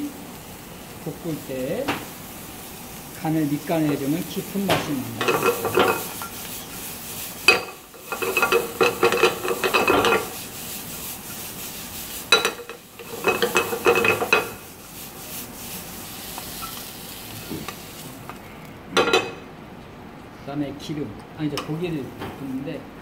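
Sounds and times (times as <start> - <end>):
vegetables sizzling: 0.0 - 19.5
wooden spatula stirring in pan: 0.8 - 18.4.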